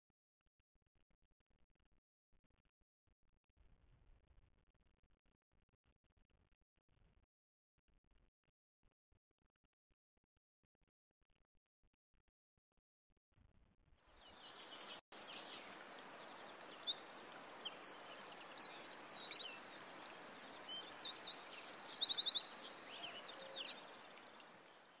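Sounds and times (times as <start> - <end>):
songbirds chirping and trilling: 14.2 - 25.0
soft hiss: 14.4 - 25.0.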